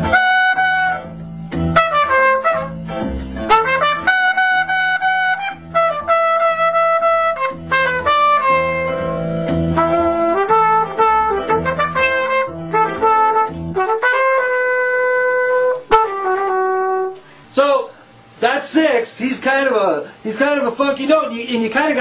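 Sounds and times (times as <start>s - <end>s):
trumpet jazz solo: 0.0s - 17.3s
backing track of bass and chords: 0.0s - 17.6s.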